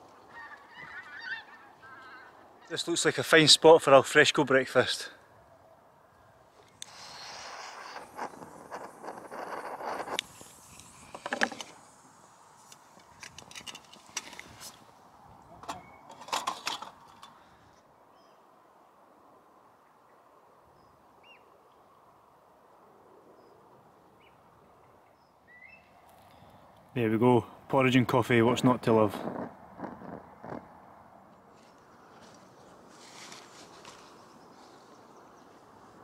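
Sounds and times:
fire steel scraping: 6.8s - 11.9s
faint bird chirps: 19.8s - 21.5s, 24.2s - 26.0s.

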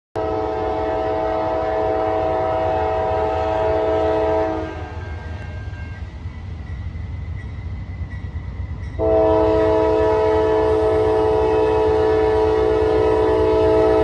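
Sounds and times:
locomotive air horn chord: 0.2s - 5.8s, 9.0s - 14.0s
train rumbling: 0.2s - 14.0s.

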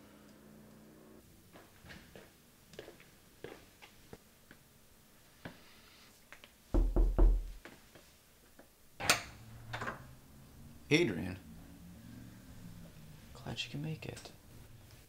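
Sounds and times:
knocks on wooden door: 6.8s - 7.6s.

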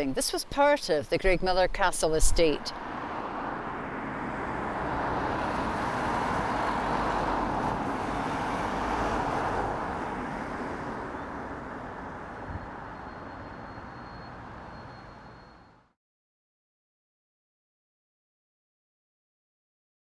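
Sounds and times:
car passing: 2.6s - 15.6s.

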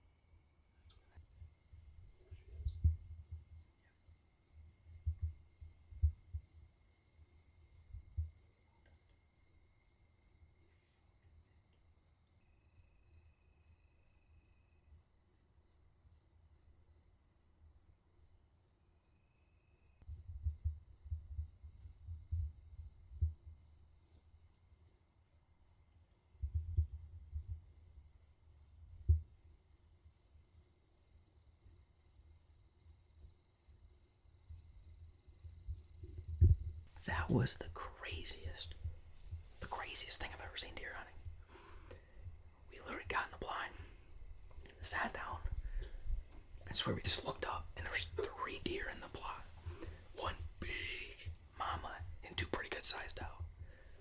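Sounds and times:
faint steady hum: 0.0s - 54.0s
insect chirping: 0.0s - 54.0s
dull low thumps: 2.5s - 3.5s, 5.0s - 6.6s, 20.1s - 23.6s, 26.4s - 27.7s, 35.5s - 36.9s.

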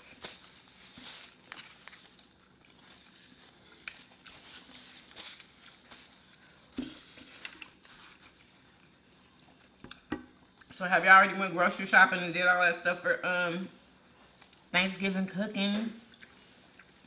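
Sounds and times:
people chewing: 0.0s - 5.1s, 5.7s - 10.8s, 13.8s - 14.7s, 16.0s - 17.0s.

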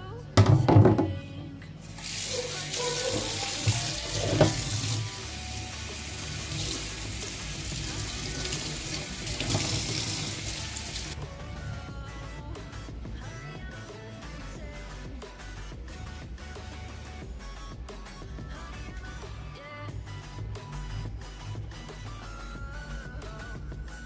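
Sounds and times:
water splashing onto a pan: 1.9s - 11.2s
tap running into a sink: 2.0s - 5.1s, 6.3s - 11.2s.

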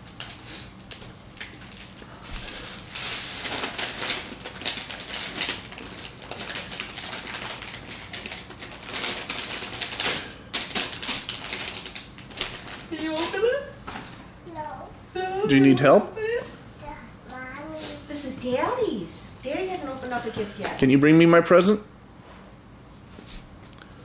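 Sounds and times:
metallic gift wrap crinkling: 0.0s - 13.8s.

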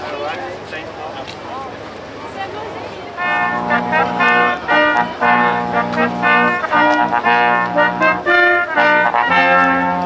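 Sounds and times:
brass street band playing: 3.1s - 10.0s.

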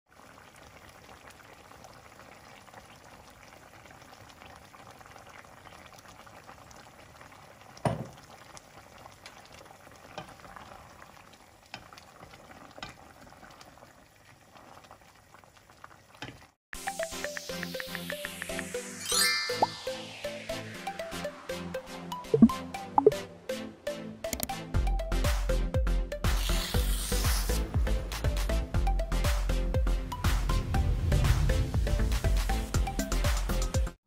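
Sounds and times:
pot bubbling and crackling: 0.1s - 18.8s.

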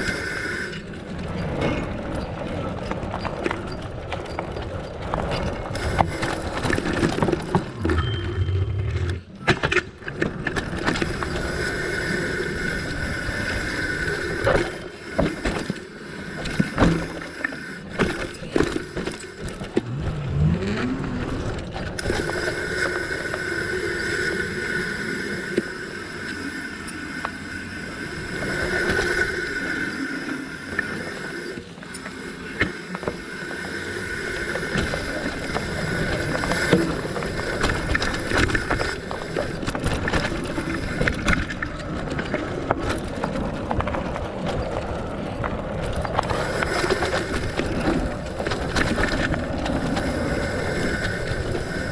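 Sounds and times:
bike tyres humming on dirt: 0.0s - 51.9s.

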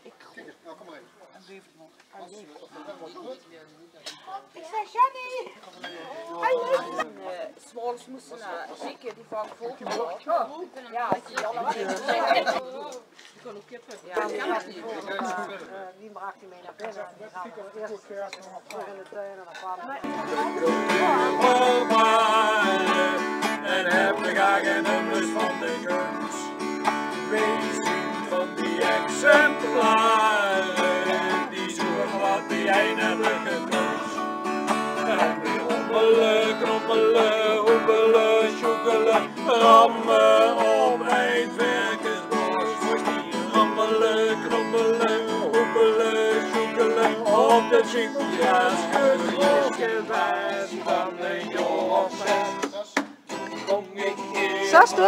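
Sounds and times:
acoustic guitar strumming: 20.1s - 55.0s
people singing together: 20.1s - 55.0s.

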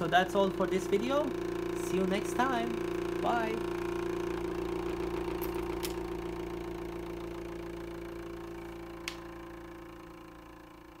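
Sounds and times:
thermoacoustic engine humming: 0.0s - 11.0s.

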